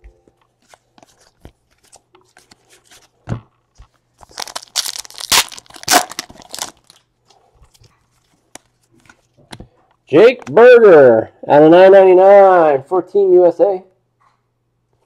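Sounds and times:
foil card pack tearing: 4.2 - 7.0.

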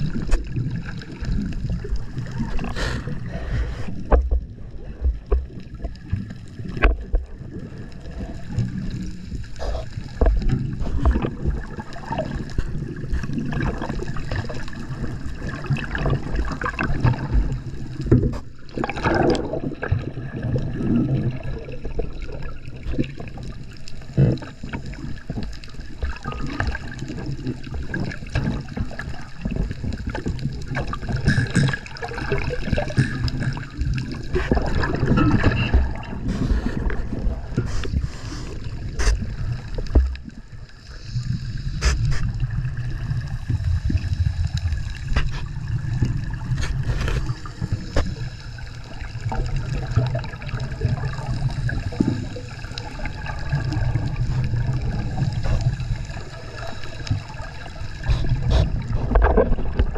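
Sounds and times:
underwater clicks and knocks: 0.0 - 2.8, 3.5 - 7.7, 9.6 - 14.6, 15.4 - 23.4, 24.1 - 38.1, 38.9 - 40.4, 44.6 - 48.2, 58.0 - 59.9
underwater bubbles gurgling: 0.0 - 59.9.

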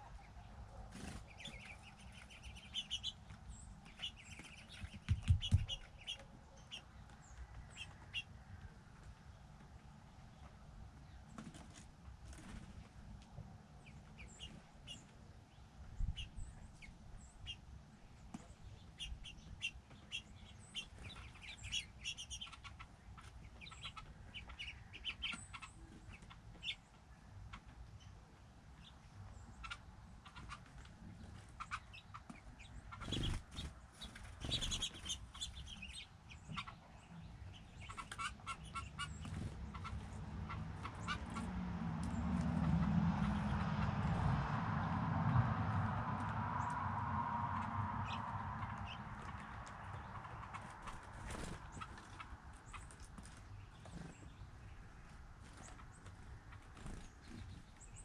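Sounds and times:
songbirds chirping: 0.0 - 58.0
low rumble: 41.7 - 51.1.

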